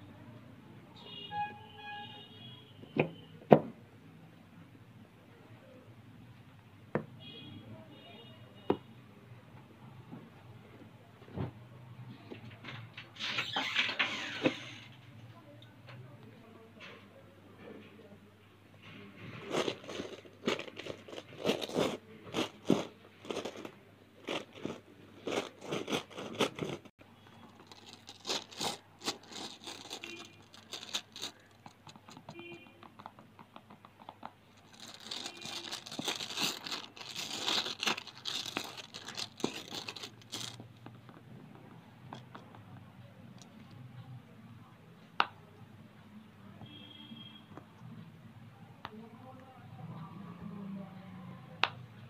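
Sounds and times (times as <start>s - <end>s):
nails tapping and scratching silicone: 27.6s - 42.6s.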